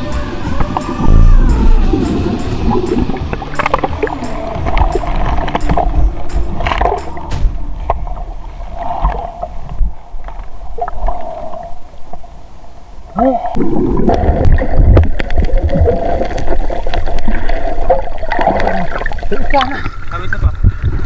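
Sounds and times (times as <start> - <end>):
muffled underwater rumble and gurgling: 0.0 - 21.0
sea water sloshing: 13.6 - 21.0.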